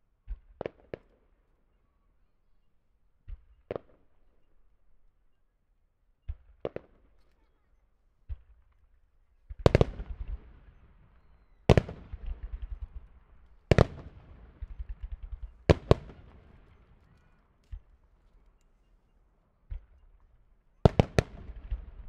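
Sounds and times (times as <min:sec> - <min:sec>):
firework shells bursting: 0:11.7 - 0:18.8.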